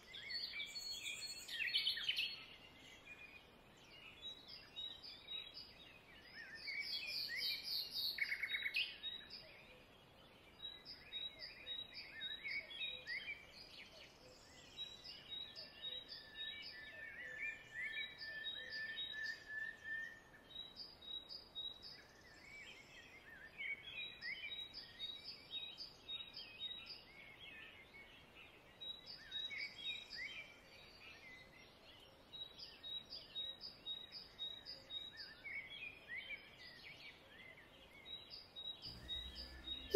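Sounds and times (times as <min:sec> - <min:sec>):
birds chirping: 0:38.6 - 0:39.9.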